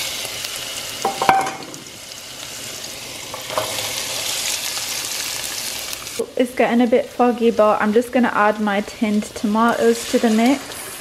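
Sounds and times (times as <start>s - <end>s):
garlic sizzling in hot oil: 0.0s - 11.0s.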